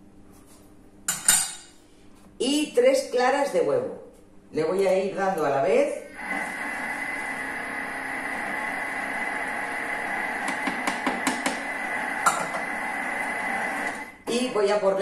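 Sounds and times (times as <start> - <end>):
kitchen mixer motor whining: 6.0 - 14.2.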